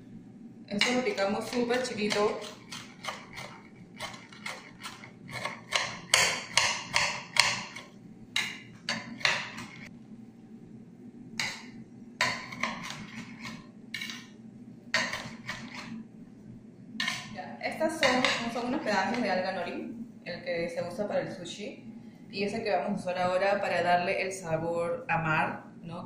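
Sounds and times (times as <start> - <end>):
knife chopping herbs on cutting board: 0.8 - 7.9.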